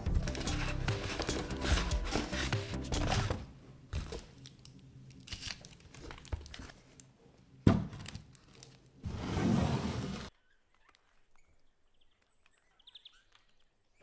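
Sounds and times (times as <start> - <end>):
plastic parcels crinkling: 0.0 - 9.0.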